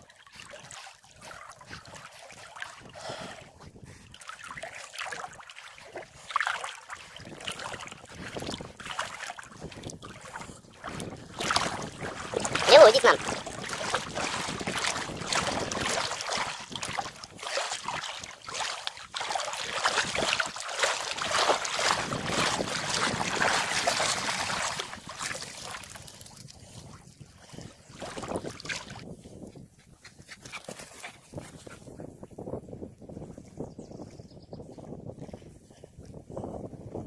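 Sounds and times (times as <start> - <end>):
dog splashing through water: 0.0 - 3.4, 4.1 - 29.0.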